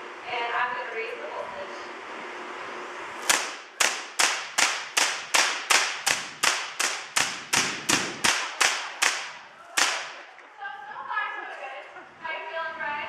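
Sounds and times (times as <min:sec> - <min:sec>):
high-voltage sparks cracking: 0:03.2 - 0:10.3.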